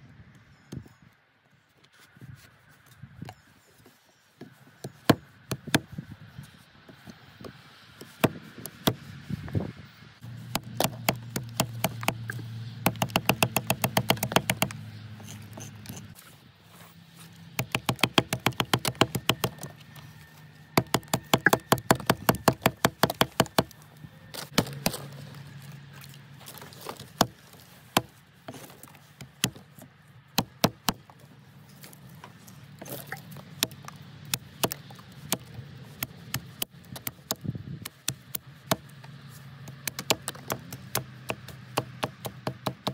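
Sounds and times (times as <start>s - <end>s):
hatchet chopping stick on wood block: 10.5s - 16.2s, 17.6s - 19.7s, 20.8s - 23.8s.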